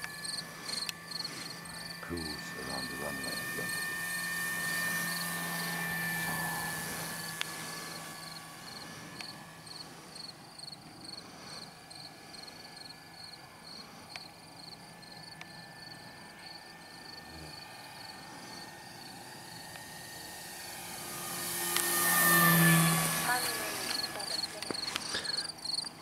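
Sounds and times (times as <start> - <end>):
model plane rushing noise: 0.0 - 26.0
insects chirping: 0.1 - 2.2, 7.1 - 19.7, 23.5 - 25.9.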